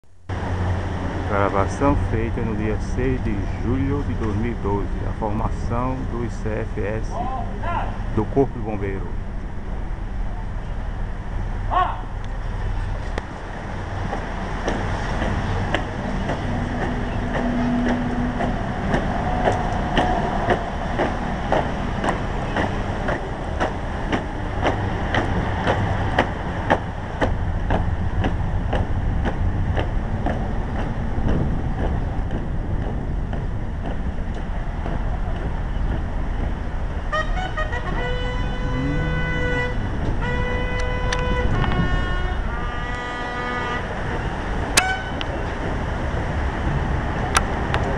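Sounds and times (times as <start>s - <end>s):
low outdoor rumble: 0.0s - 47.9s
boots marching on pavement: 12.9s - 37.1s.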